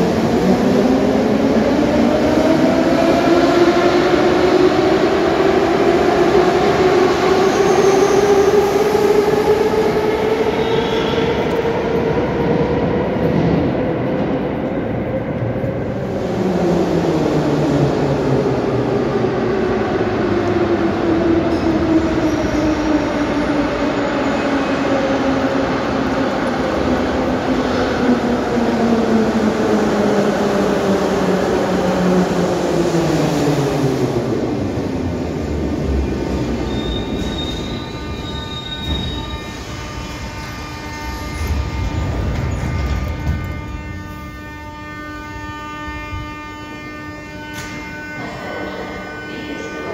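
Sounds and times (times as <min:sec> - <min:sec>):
wheels rumbling on rails: 0:00.0 - 0:46.1
wheel squeal: 0:36.6 - 0:39.7.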